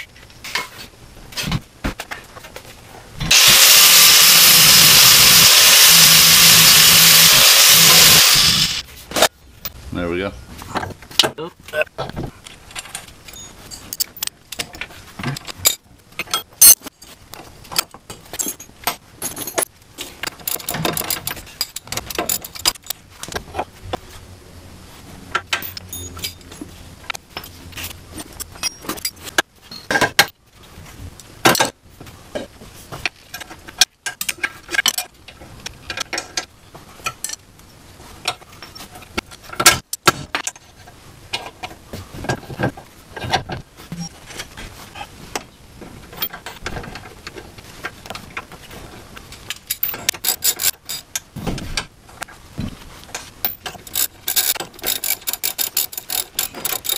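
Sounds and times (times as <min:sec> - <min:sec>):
hand tools clinking on metal: 0:49.6 - 0:51.2, 0:53.4 - 0:56.9.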